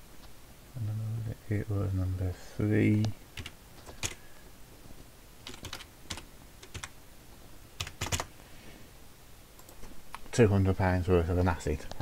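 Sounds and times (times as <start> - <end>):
typing on keyboard: 3.4 - 4.2, 5.4 - 6.9, 7.8 - 8.3.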